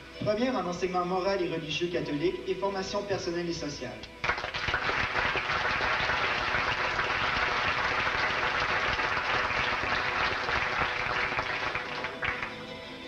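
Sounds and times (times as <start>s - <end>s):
audience clapping: 4.2s - 12.8s.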